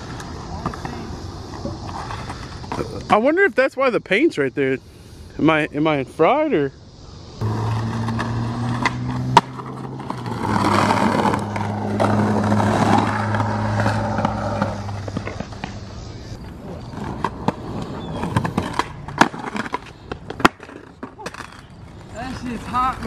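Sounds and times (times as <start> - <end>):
skateboard wheels rolling on concrete: 0.0 - 23.0
skateboard clacks: 8.0 - 15.8, 16.9 - 23.0.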